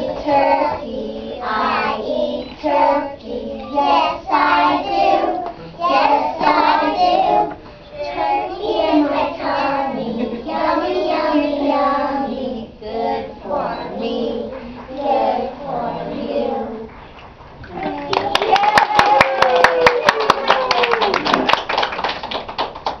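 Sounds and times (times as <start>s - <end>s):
young children singing: 0.0s - 17.0s.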